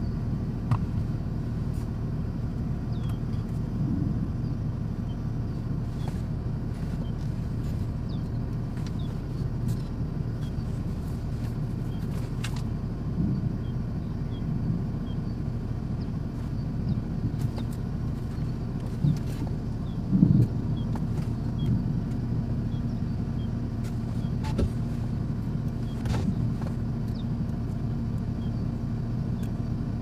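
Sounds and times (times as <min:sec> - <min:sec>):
wind buffeting microphone: 0:03.0 - 0:23.5.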